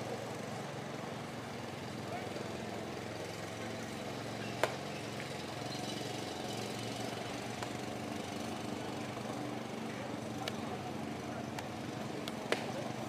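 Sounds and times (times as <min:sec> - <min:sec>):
low engine hum: 0:00.0 - 0:13.0
baseball smacking into mitt: 0:04.6 - 0:04.8, 0:12.2 - 0:12.8.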